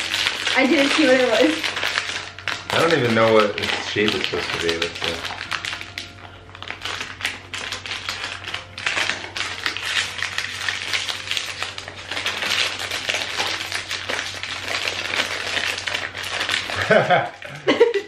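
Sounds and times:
foil-plastic bags crinkling: 0.0 - 18.0.

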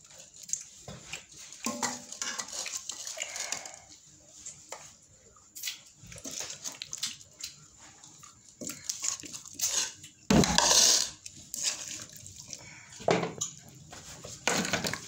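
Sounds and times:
metal spoon scraping metal pan: 9.6 - 11.9.

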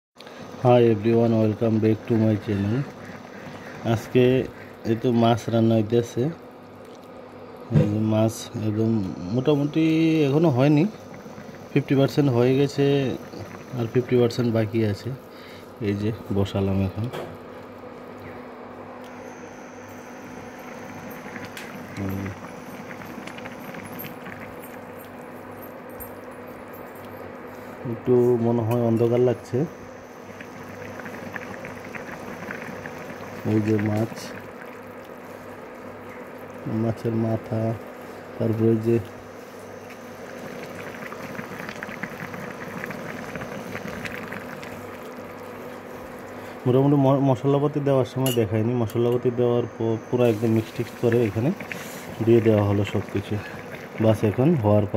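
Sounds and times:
faint high whine: 0.2 - 6.5, 7.3 - 54.9
steady hum: 0.2 - 54.9
curry bubbling and popping: 1.0 - 5.6, 10.3 - 15.1, 19.0 - 26.2, 28.7 - 47.2, 50.4 - 54.9.

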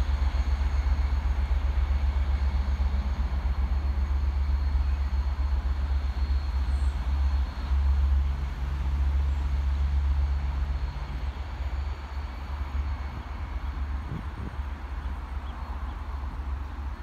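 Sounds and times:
distant diesel locomotive engine rumble: 0.0 - 17.0.

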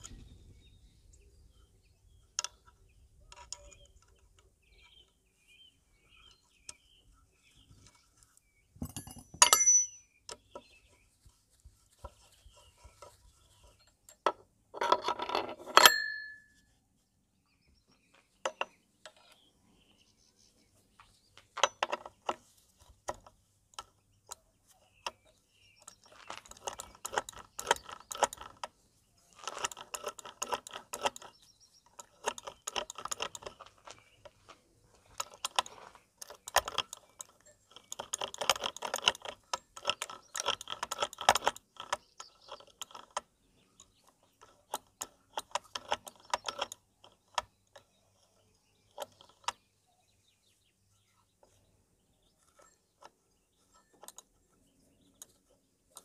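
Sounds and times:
sharp metallic clanks: 8.8 - 10.1, 15.6 - 16.6
tools clinking on metal: 8.8 - 10.4, 13.8 - 16.6.

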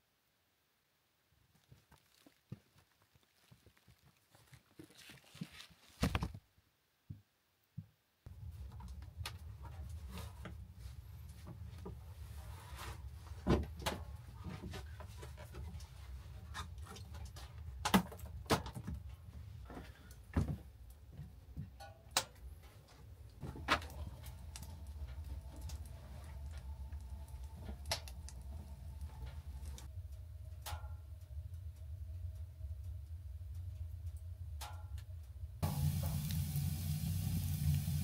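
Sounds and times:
clothing rustle: 1.5 - 6.4
steady low hum: 22.4 - 38.0.

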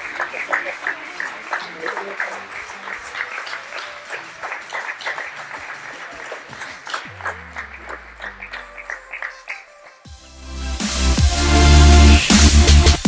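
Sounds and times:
audience applauding: 0.0 - 10.1
music with low bass: 7.1 - 9.1, 10.1 - 13.0.

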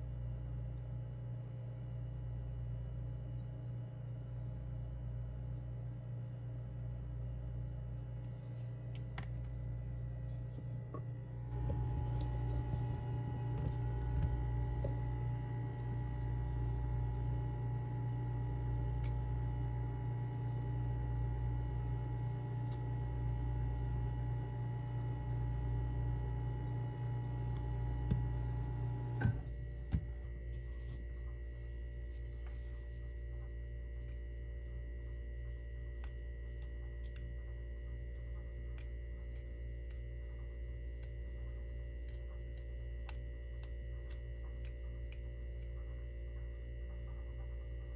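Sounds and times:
low electrical hum: 0.0 - 47.9
click: 35.9 - 37.5.

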